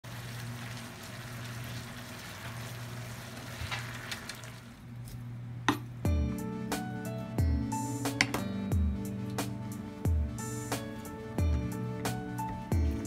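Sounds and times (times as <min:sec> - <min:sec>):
food sizzling in a frying pan: 0:00.0 - 0:04.6
background music: 0:05.7 - 0:13.0.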